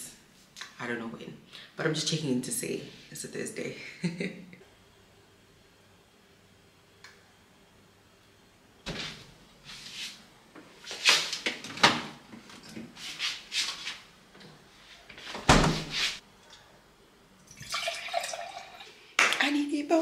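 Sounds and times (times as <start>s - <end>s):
kitchen thump: 15.4s - 16.2s.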